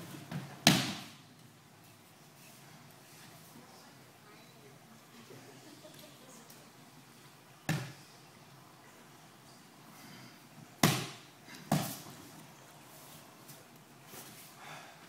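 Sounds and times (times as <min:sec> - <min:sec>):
body slapping a padded mat: 0:00.3 - 0:01.2, 0:10.8 - 0:12.1.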